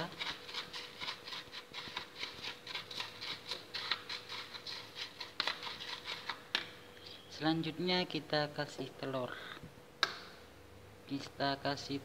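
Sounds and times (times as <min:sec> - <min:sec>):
spoon scraping noodles in bowl: 0:00.0 - 0:07.0.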